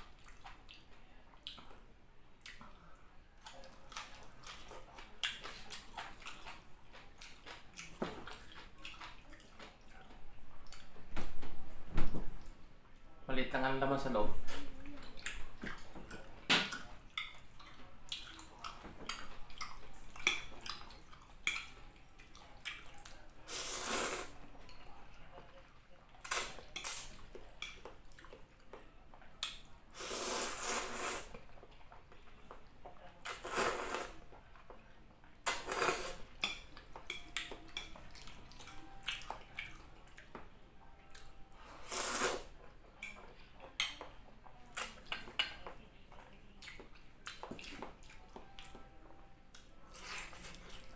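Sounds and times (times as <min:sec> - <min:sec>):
noodles slurped: 0:23.5 - 0:24.4, 0:30.0 - 0:31.3, 0:41.8 - 0:42.5.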